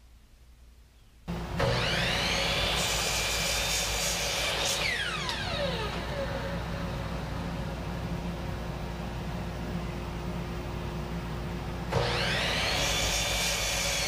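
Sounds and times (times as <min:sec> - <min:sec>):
electric saw cutting wood: 0:01.3 - 0:06.9, 0:11.9 - 0:14.0.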